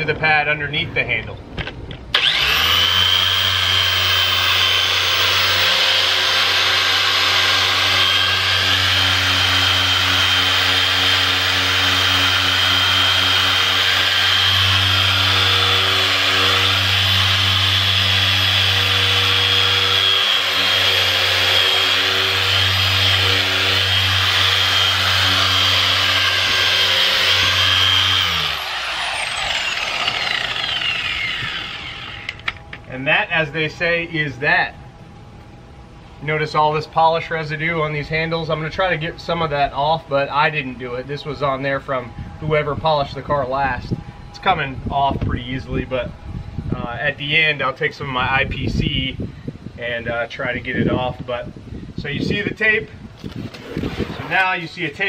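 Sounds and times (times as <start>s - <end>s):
electric car polisher whining: 2.2s - 32.8s.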